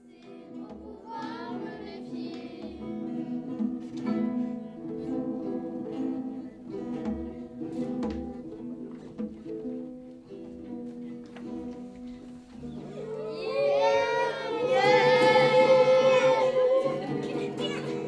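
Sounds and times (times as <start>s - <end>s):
acoustic guitars strumming: 0.0s - 18.0s
hand drum beats: 0.3s - 4.6s, 6.8s - 10.8s.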